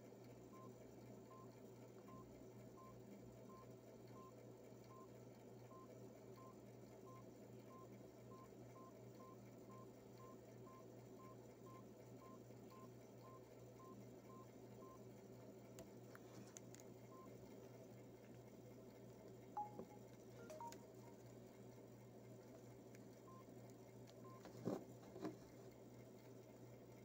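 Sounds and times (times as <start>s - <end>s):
steady low hum: 0.0s - 27.0s
soft clicks: 15.7s - 16.9s
phone keypad beeps: 19.6s - 21.2s, 24.2s - 24.5s.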